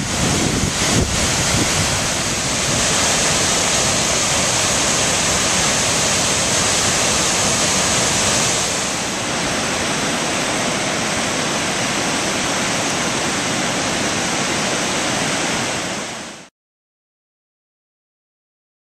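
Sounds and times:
waterfall rushing: 0.0 - 16.5.

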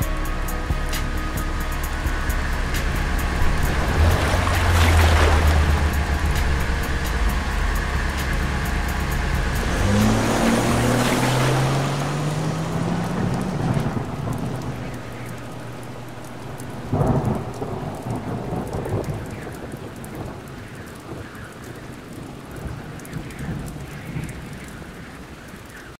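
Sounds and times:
passing car engine hum: 0.0 - 17.6
heavy rain on a street: 0.0 - 26.0
thunder clap: 0.8 - 25.4.

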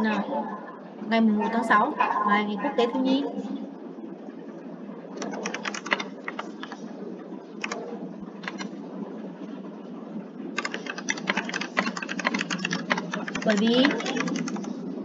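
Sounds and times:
steady low hum: 0.0 - 15.0
keyboard typing clicks: 5.2 - 6.8, 7.6 - 7.8, 8.4 - 8.7, 10.6 - 14.8.

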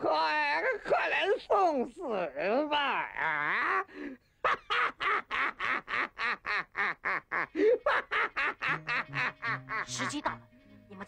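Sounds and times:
cartoon bird laughing: 4.5 - 10.2.

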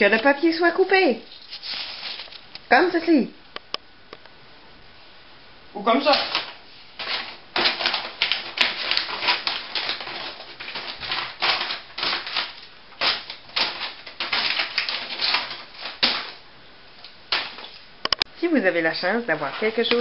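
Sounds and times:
paper rustling: 0.0 - 2.7, 6.0 - 16.4, 17.0 - 17.9, 19.3 - 20.0
scissors snipping paper: 6.0 - 16.4.

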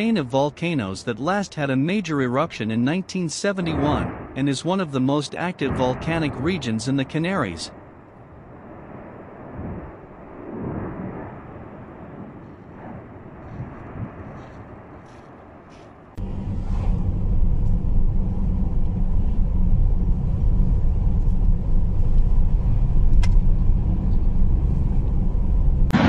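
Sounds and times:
quiet outdoor rumble: 0.0 - 26.0
car driving drone: 16.2 - 26.0.

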